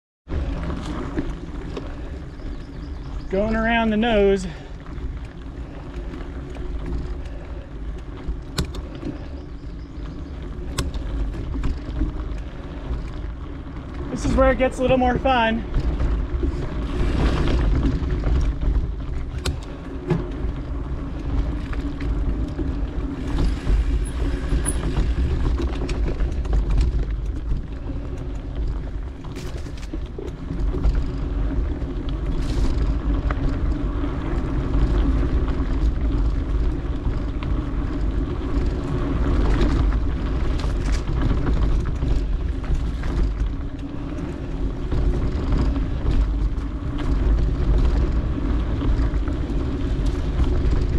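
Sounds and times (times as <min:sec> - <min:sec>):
bike knocking and rattling: 0:00.3 - 0:50.9
tyres rumbling over dirt: 0:00.3 - 0:50.9
wind buffeting microphone: 0:00.3 - 0:50.9.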